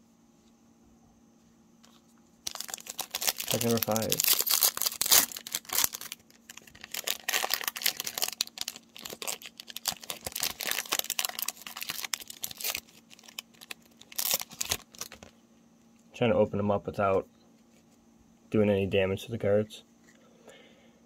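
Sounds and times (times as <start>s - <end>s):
foil wrapper crinkling: 1.8s - 15.4s.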